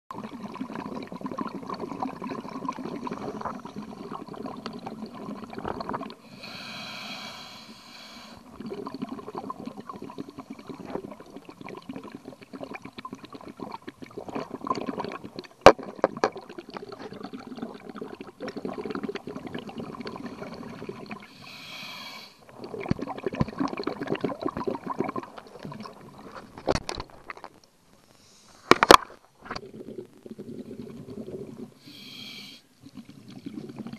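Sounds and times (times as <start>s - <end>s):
exhaled bubbles crackling underwater: 0.1s - 27.6s, 28.8s - 32.1s, 32.7s - 33.9s
regulator inhalation hiss: 6.2s - 8.4s, 21.3s - 22.4s, 31.8s - 32.7s.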